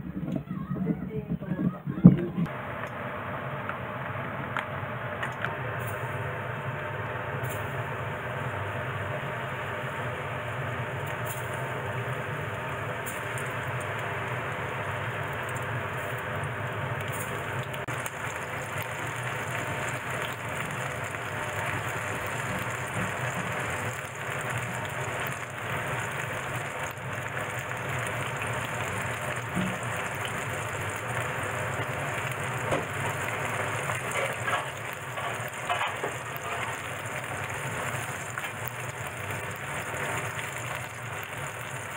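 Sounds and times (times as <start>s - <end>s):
deep-frying sizzle in oil: 2.5s - 41.9s
oil crackling and popping: 3.6s - 6.2s, 7.4s - 7.8s, 8.4s - 41.9s.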